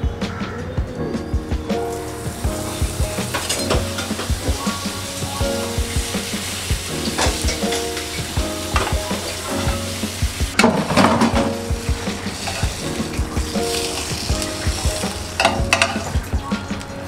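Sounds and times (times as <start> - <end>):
soft music with steady beat: 0.0 - 17.0.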